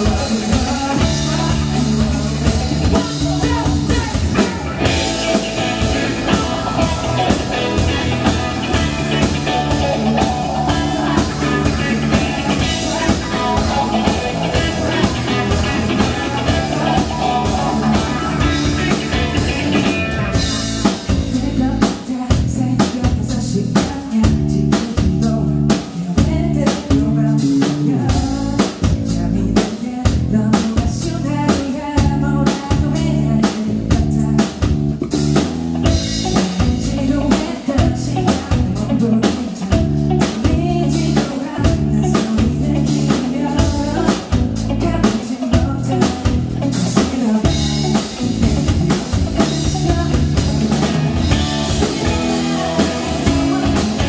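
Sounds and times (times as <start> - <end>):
person singing: 0.0 - 34.8, 35.9 - 54.0
live rock band playing: 0.0 - 54.0.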